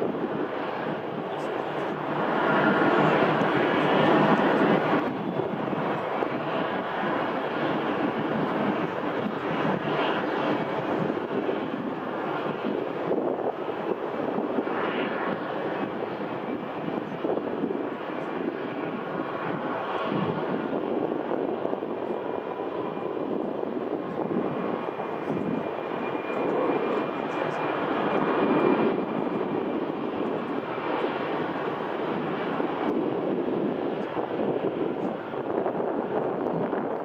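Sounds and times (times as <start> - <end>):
distant jet engine hum: 0.0 - 37.0.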